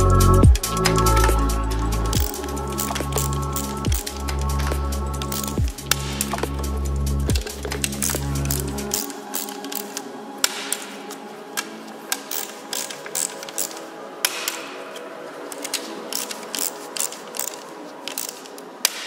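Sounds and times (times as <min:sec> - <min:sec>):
socket wrench clicking on metal: 0:02.2 - 0:06.6.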